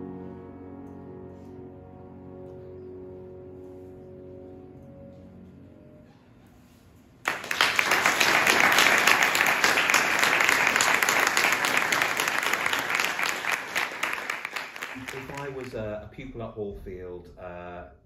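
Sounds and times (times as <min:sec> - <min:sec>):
audience applause: 0:07.2 - 0:15.8.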